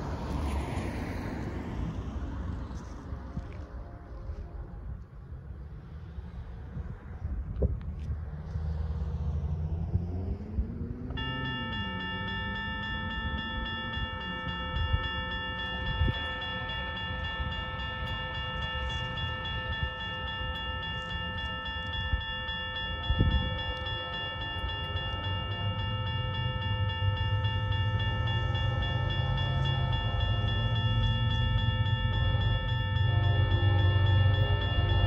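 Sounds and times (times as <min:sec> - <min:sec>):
low rumble of approaching train: 0:00.0 - 0:35.0
electronic crossing bells ringing: 0:09.6 - 0:35.0.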